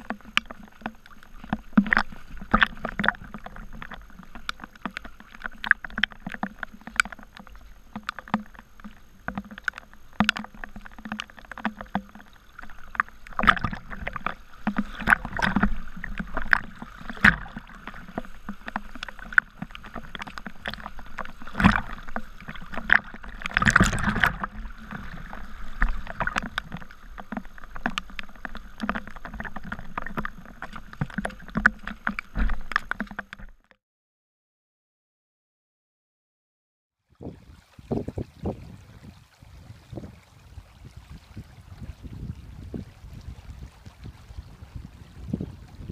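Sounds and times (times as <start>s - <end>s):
sharp water splashes: 0.0s - 33.4s
water rushing across ground: 0.0s - 33.5s, 37.1s - 45.9s.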